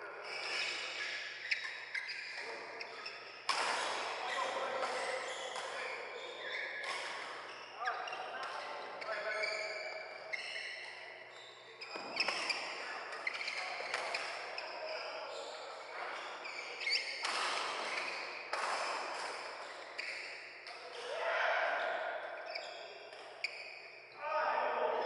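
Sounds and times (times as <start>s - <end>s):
shoes squeaking on court: 0.2s - 20.7s, 22.5s - 24.1s
racket hitting shuttlecock: 17.2s - 19.6s.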